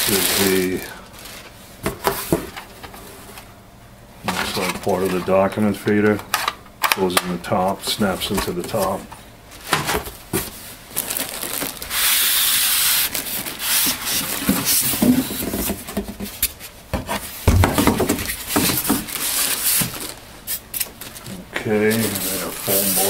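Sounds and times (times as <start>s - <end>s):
plastic bag rustling: 0.0s - 3.4s, 4.2s - 6.3s, 7.8s - 16.0s, 17.4s - 23.0s
foam scraping cardboard: 21.8s - 23.0s.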